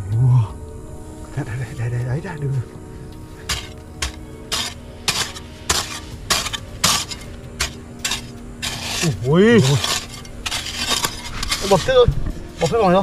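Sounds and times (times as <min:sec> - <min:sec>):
hoe chopping into soil: 0:03.5 - 0:11.9.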